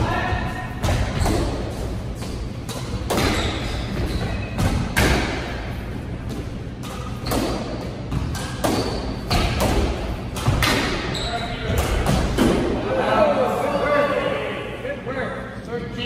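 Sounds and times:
squash ball knocks echoing: 0.6s - 12.8s.

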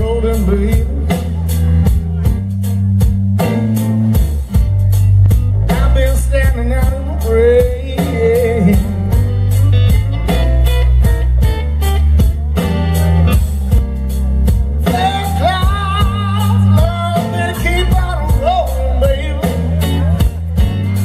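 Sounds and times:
man singing: 0.0s - 2.6s, 5.6s - 10.7s, 14.4s - 21.0s
bass guitar: 0.0s - 21.0s
drums: 0.0s - 21.0s
electric guitar: 0.0s - 21.0s.

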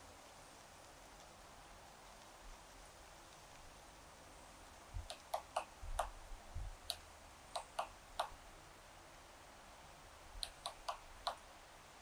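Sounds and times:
woodpecker clicking: 5.0s - 6.2s, 6.9s - 8.4s, 10.4s - 11.5s.

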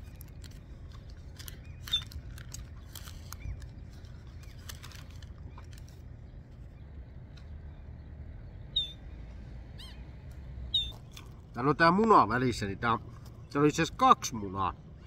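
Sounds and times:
paper wrapper crinkling: 0.0s - 6.2s
low steady rumble: 0.0s - 15.0s
faint bird calls: 1.4s - 11.2s.

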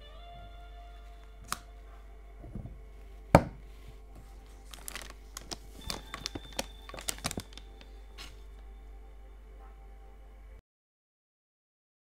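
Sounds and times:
faint background music: 0.0s - 10.6s
bottle and box handling taps: 3.4s - 3.6s.

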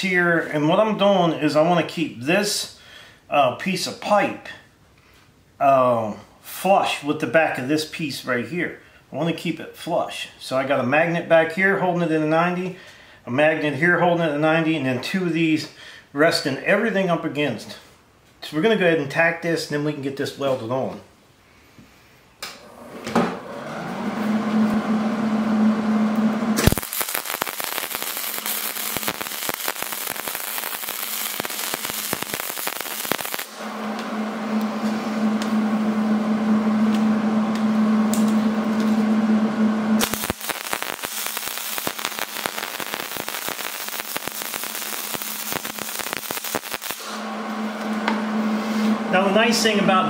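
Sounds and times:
steady hum: 24.6s - 50.0s
welder arc crackling: 26.2s - 49.8s.

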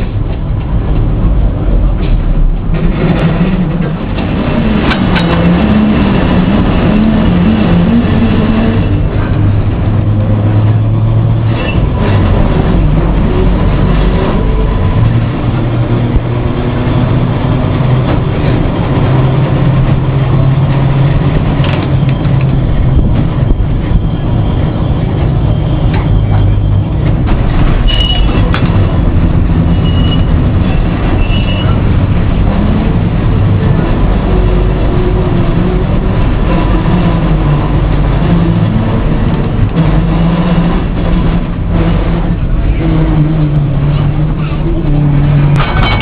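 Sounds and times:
tram wheels rumbling on rail: 0.0s - 46.0s
high wheel squeaks: 21.6s - 32.0s.

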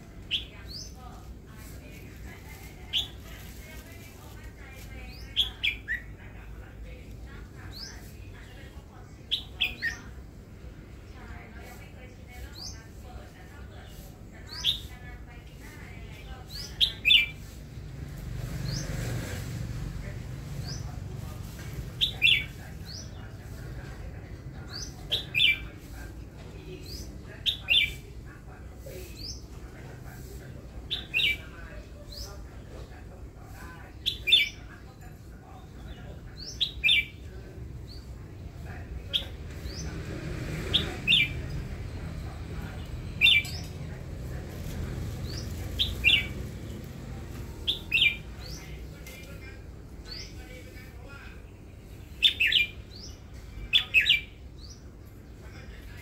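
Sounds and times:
bird chirping: 40.6s - 50.7s, 51.3s - 54.9s.

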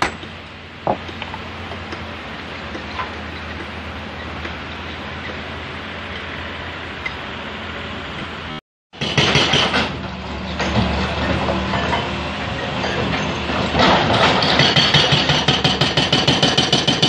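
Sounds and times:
diesel engine running: 0.0s - 8.6s
hydraulic breaker hammering rock: 9.0s - 12.1s, 12.7s - 17.0s.

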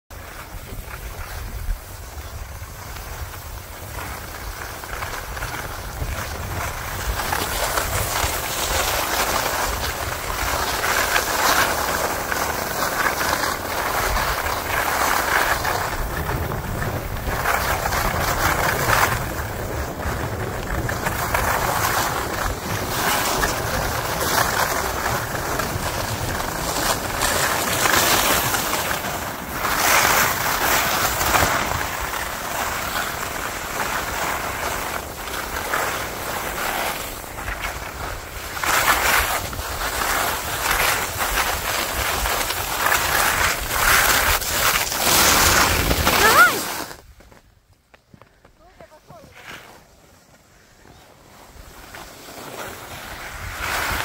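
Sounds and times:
skis scraping over snow: 0.1s - 54.0s
wind buffeting microphone: 15.4s - 27.7s.

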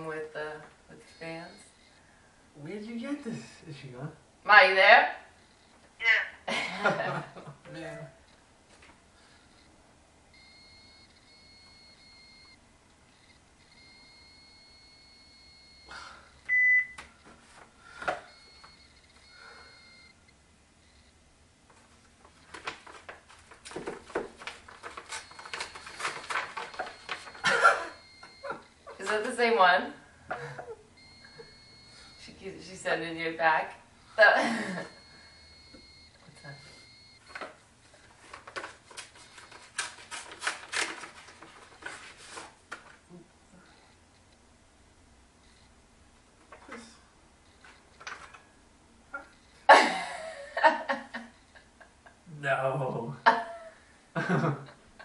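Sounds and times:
faint high whine: 10.3s - 21.2s
paper rustling: 21.8s - 27.6s, 37.2s - 43.0s.

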